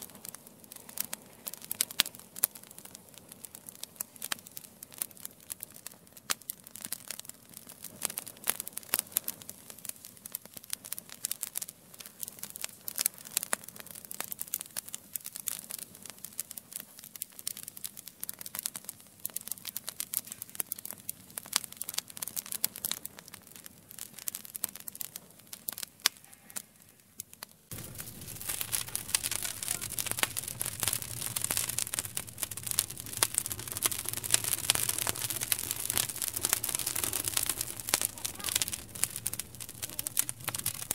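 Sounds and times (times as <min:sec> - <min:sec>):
low rush of flames: 0:00.0 - 0:14.2, 0:27.7 - 0:40.9
wood fire crackling and popping: 0:00.0 - 0:40.9.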